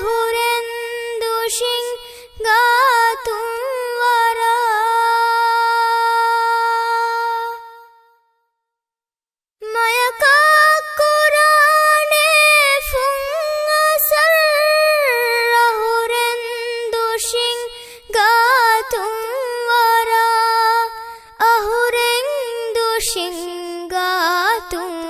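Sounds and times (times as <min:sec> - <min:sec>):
solo voice singing unaccompanied: 0:00.0 - 0:08.0, 0:09.6 - 0:25.0
singer breathing: 0:02.0 - 0:02.4, 0:17.8 - 0:18.1.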